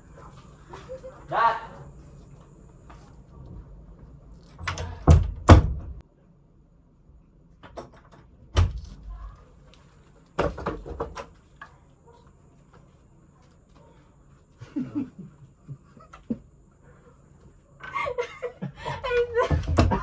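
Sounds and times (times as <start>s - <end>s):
door thuds: 4.6s - 6.0s
interior door banging: 4.6s - 6.0s, 19.4s - 20.0s.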